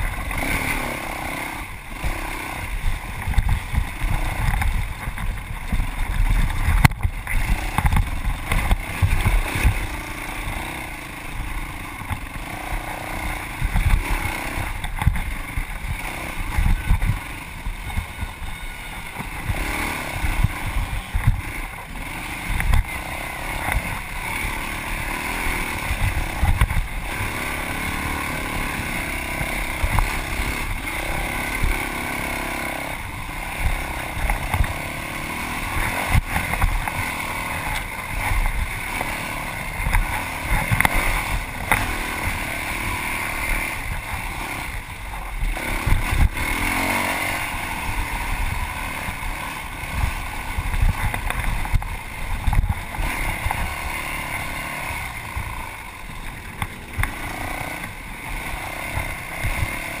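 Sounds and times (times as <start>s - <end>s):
dirt bike engine running hard: 0.0s - 60.0s
bike knocking on terrain: 13.6s - 17.2s.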